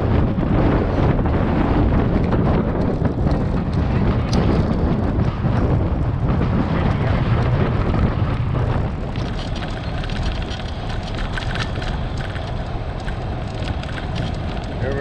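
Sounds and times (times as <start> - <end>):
wind buffeting microphone: 0.0 - 15.0
small crackles and ticks: 6.8 - 15.0.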